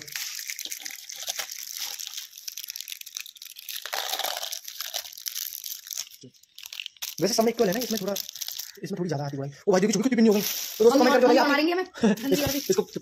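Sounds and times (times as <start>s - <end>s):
plastic packets crinkling: 0.0s - 9.5s, 10.1s - 11.6s, 12.2s - 13.0s
candy dropping into glass bowl: 12.3s - 12.9s.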